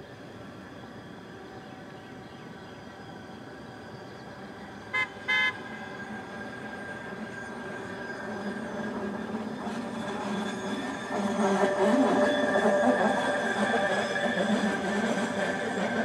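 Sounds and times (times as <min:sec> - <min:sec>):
truck horn toots: 0:05.0 - 0:05.6.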